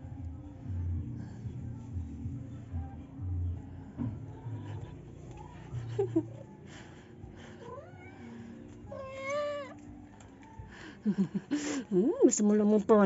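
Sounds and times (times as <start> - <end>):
kitten meowing: 8.9 - 9.8.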